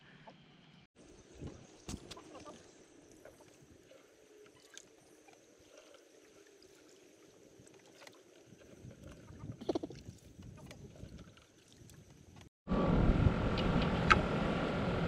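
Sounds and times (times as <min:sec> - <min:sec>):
shallow water sloshing: 0:01.3 - 0:12.5.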